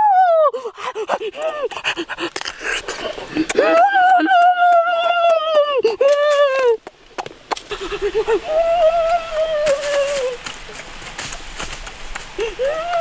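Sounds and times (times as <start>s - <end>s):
person humming: 7.7s - 10.4s, 12.4s - 13.0s.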